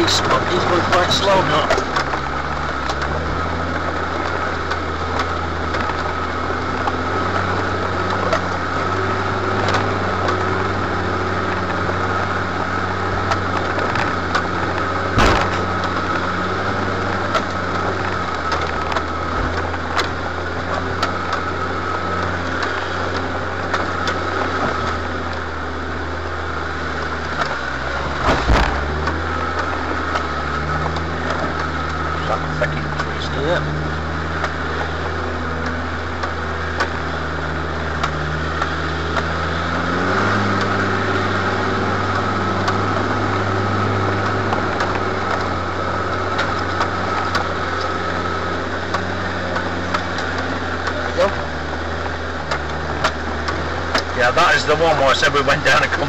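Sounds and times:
vehicle engine running: 0.0s - 56.0s
knocks through vehicle body: 15.1s - 15.9s, 28.2s - 28.9s.

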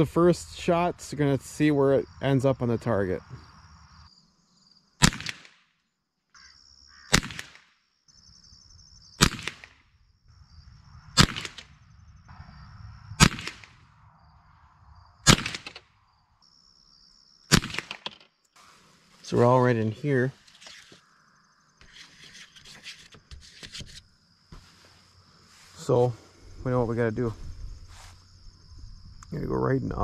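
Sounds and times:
faint insect whine: 0.0s - 30.0s
rifle shots: 5.0s - 5.6s, 7.1s - 7.6s, 9.2s - 9.8s, 11.2s - 11.8s, 13.2s - 13.8s, 15.2s - 15.9s, 17.5s - 18.2s.

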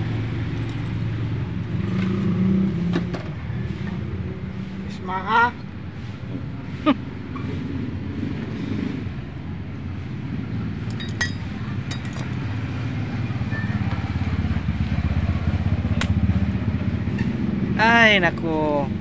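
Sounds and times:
metallic clinks of tools: 0.5s - 1.0s, 10.8s - 12.4s
motorcycle engine running: 10.5s - 18.2s.

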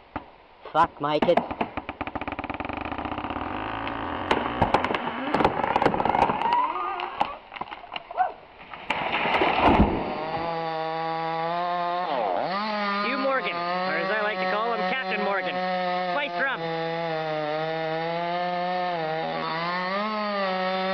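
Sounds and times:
wood cracking and snapping: 1.3s - 10.6s
chainsaw running: 1.8s - 7.3s, 9.9s - 20.9s.

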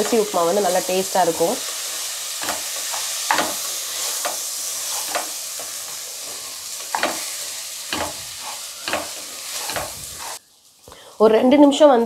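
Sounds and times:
oil sizzling: 0.0s - 12.0s
spatula scraping rice in a pot: 2.5s - 5.4s, 8.3s - 10.4s.

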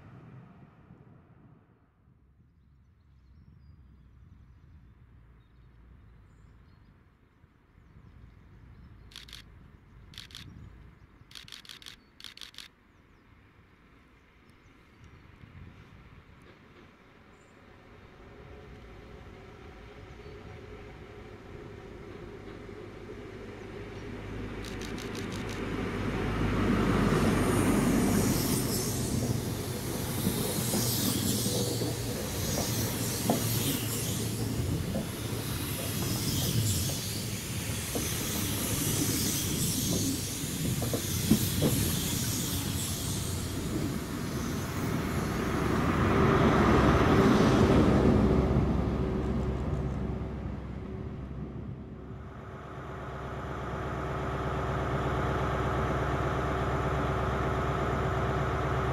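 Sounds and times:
diesel train engine passing: 13.3s - 58.9s
diesel locomotive idling: 18.0s - 46.4s, 47.9s - 58.9s
train wheels knocking on rail joints: 29.2s - 37.2s, 37.8s - 38.8s, 39.9s - 42.6s.

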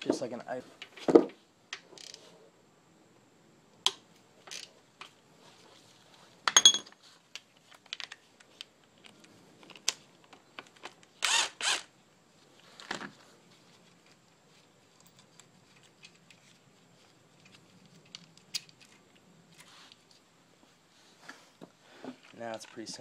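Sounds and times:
metal parts and chain clinking: 6.5s - 7.0s, 14.8s - 16.6s
cordless power tool whirring: 11.2s - 11.9s.

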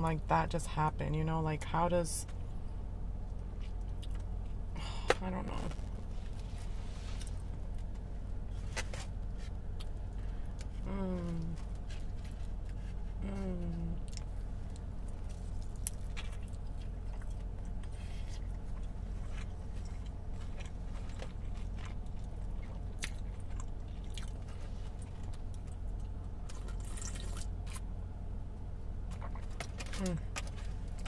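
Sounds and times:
chewing crispy food: 3.2s - 4.6s, 14.0s - 27.9s.

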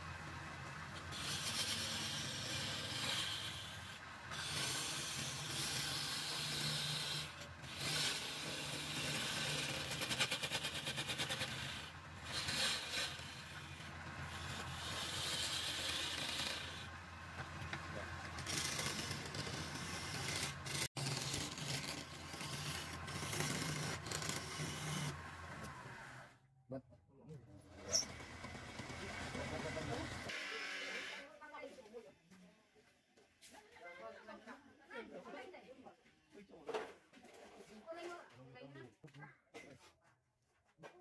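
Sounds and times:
chisel cutting spinning wood: 0.0s - 26.2s, 27.7s - 31.3s
wood lathe humming: 0.0s - 26.2s, 27.8s - 31.2s.

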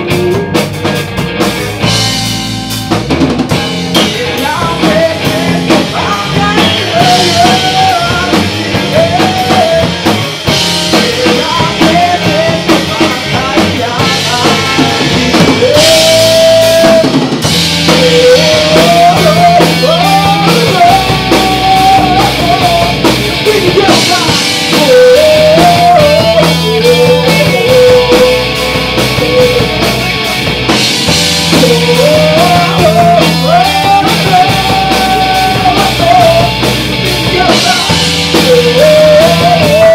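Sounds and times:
man singing: 0.0s - 1.0s, 3.8s - 39.9s
drum kit: 0.0s - 39.9s
electric guitars: 0.0s - 39.9s.

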